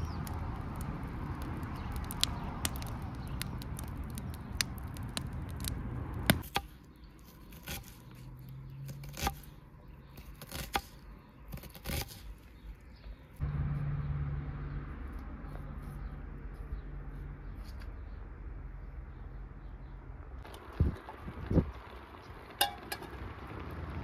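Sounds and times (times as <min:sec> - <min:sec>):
wood fire crackling and hissing: 0:00.0 - 0:06.4, 0:20.4 - 0:24.0.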